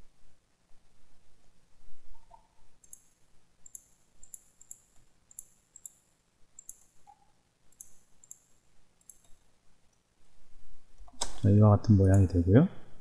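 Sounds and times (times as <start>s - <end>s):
computer mouse clicking: 2.1s - 6.0s, 6.6s - 9.4s.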